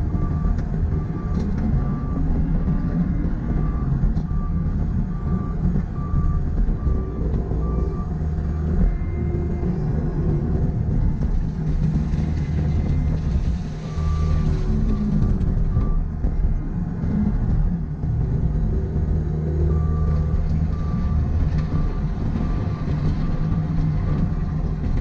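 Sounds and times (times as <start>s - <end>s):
diesel engine running: 0.0s - 25.0s
backup alarm beeping: 0.1s - 10.7s, 13.8s - 17.3s, 18.7s - 24.3s.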